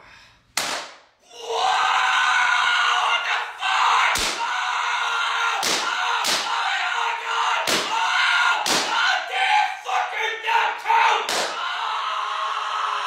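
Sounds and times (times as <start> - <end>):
loud slams: 0.6 - 1.0, 4.1 - 4.5, 5.6 - 6.5, 7.6 - 8.0.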